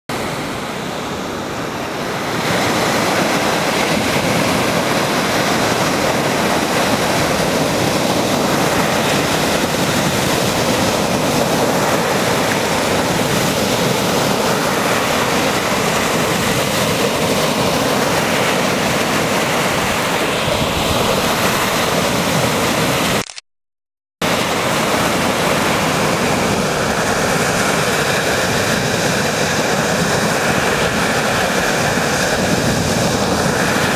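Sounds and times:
waves breaking on pebble shore: 2.0s - 23.2s, 24.2s - 33.9s.

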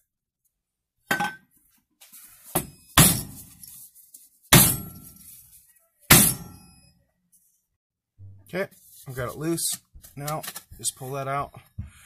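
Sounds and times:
metal blows ringing: 6.1s - 6.8s.

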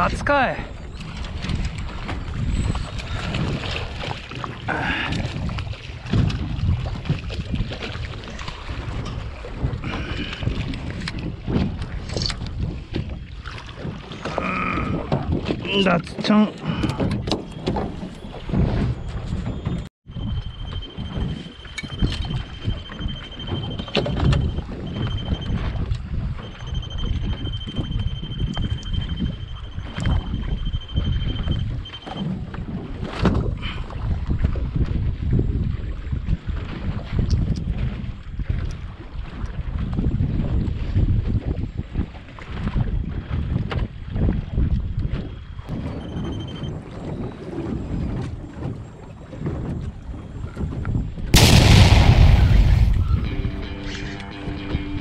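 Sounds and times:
wind on microphone: 0.0s - 55.0s
water sloshing against boat hull: 0.2s - 51.8s.

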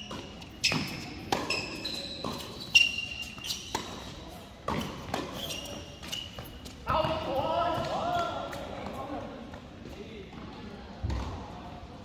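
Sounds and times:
shoes squeaking on court: 0.0s - 9.0s
tennis ball hits and bounces: 0.1s - 2.6s, 3.3s - 6.1s.

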